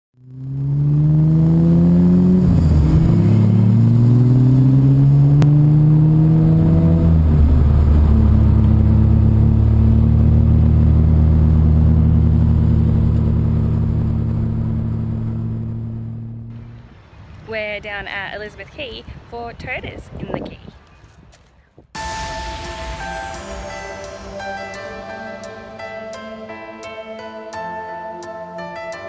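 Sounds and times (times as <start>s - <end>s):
car engine accelerating: 0.2s - 17.1s, 22.0s - 27.8s.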